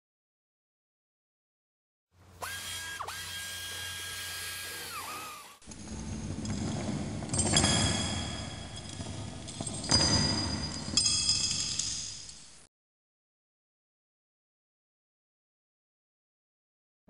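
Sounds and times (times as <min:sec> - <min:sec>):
power tool whirring: 0:02.3 - 0:07.0
metal clattering and clinking: 0:05.6 - 0:12.6.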